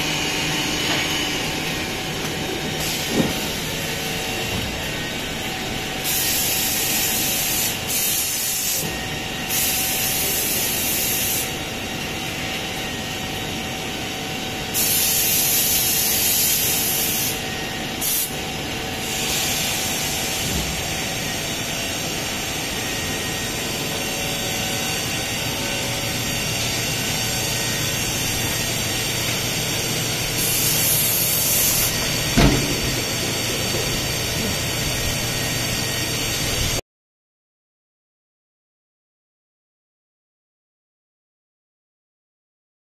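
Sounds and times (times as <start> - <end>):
production line machinery running: 0.0 - 36.8
sharp knock: 32.4 - 33.0.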